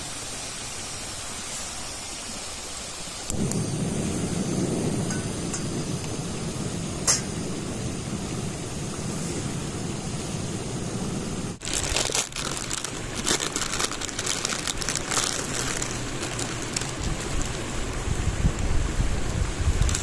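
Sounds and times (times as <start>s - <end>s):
food sizzling over campfire: 0.0s - 20.0s.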